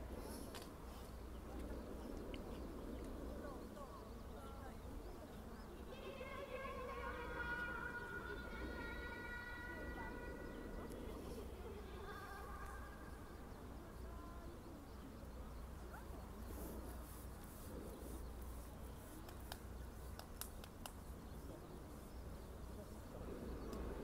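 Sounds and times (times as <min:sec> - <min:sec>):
faint distant voices: 0:00.0 - 0:24.0
steady low rumble: 0:00.0 - 0:24.0
sharp clicks: 0:19.2 - 0:21.1.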